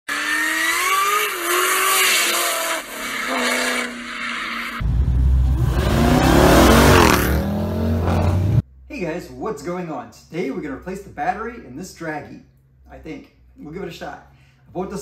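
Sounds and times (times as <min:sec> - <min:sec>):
engine revving: 0:00.1 - 0:04.1, 0:04.7 - 0:08.6
car engine passing by: 0:04.8 - 0:08.6.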